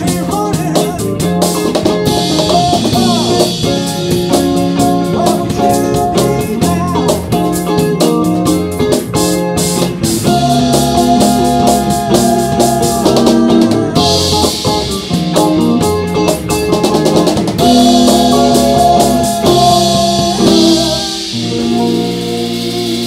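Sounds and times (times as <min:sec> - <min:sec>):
drum kit with cymbals: 0:00.0 - 0:23.0
electric bass: 0:00.0 - 0:23.0
electric guitar sustained notes: 0:01.9 - 0:23.0.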